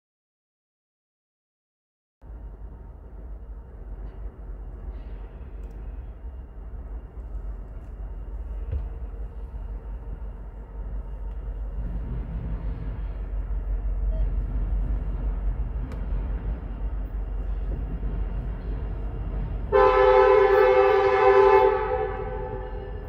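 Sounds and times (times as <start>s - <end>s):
diesel train rumbling: 2.2s - 23.0s
locomotive air horn chord: 19.7s - 23.0s.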